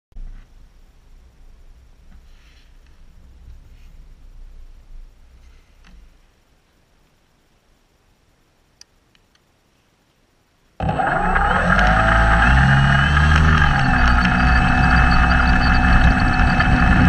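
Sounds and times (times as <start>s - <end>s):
model plane motor whining: 10.8s - 17.0s.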